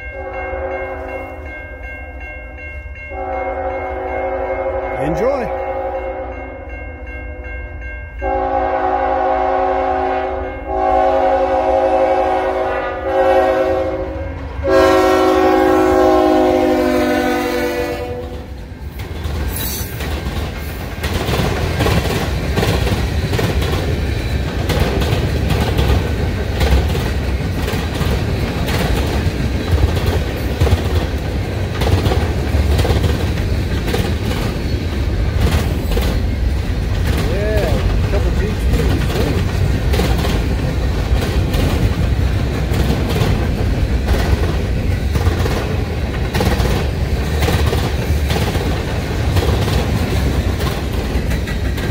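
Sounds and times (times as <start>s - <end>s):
train rumble and wheel clatter: 0.0s - 51.9s
locomotive air horn blasts: 3.1s - 6.3s, 8.2s - 18.5s.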